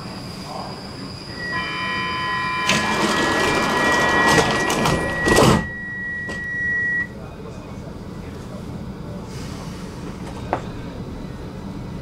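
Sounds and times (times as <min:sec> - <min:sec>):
high warning tone: 0:00.4 - 0:07.2
train rattling and knocks: 0:02.6 - 0:06.5
train doors shutting thump: 0:02.6 - 0:06.6.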